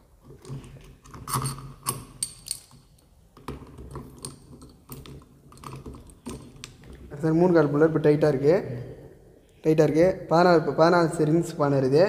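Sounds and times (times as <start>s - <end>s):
metal clinks and clicks: 0.4s - 3.0s.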